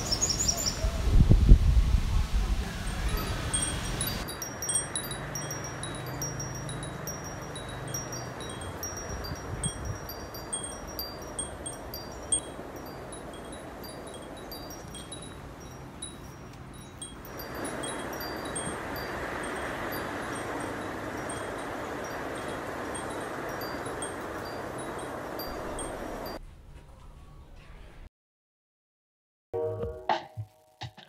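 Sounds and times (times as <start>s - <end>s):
steady hiss: 0.0s - 26.4s
metal wind chime ringing: 2.9s - 26.4s.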